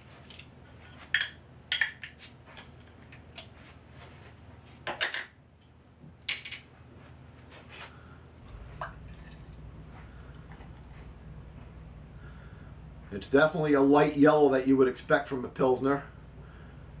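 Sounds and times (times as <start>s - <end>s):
beer pouring into glass: 8.5s - 11.0s.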